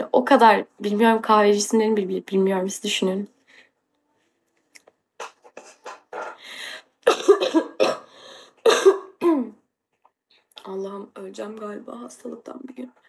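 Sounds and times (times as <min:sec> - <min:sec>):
woman coughing: 0:05.2 - 0:06.4, 0:07.0 - 0:09.6.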